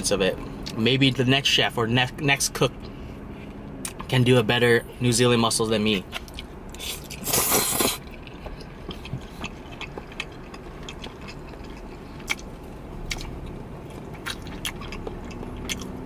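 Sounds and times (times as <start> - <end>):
chewing with wet clicks: 2.8 - 4.2, 5.8 - 16.0
person slurping noodles: 6.8 - 8.0.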